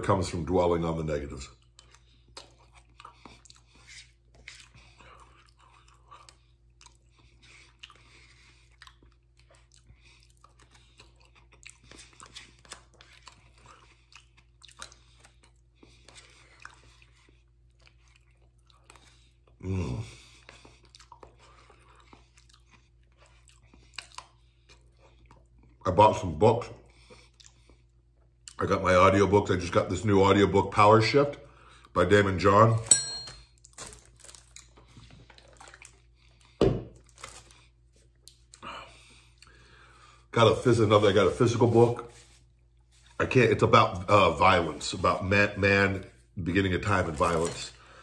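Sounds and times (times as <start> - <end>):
person chewing: 1.5 - 25.8, 26.8 - 28.6, 33.4 - 40.3.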